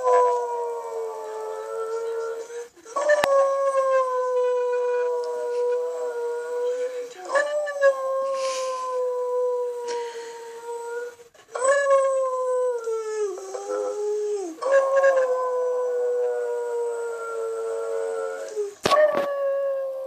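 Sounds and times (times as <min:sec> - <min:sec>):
dog howling: 0:10.7 - 0:20.0.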